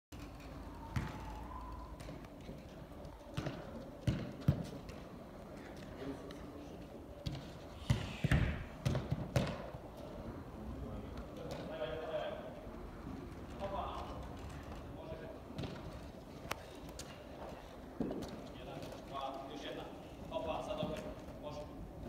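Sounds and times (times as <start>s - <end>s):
football kicked and bouncing: 0.9s - 1.2s, 3.0s - 5.1s, 7.2s - 9.7s.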